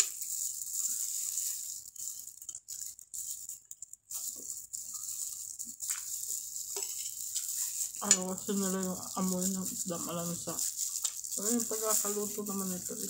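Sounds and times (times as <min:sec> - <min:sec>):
steady hiss: 0:00.0 - 0:13.0
chewing: 0:01.9 - 0:08.0.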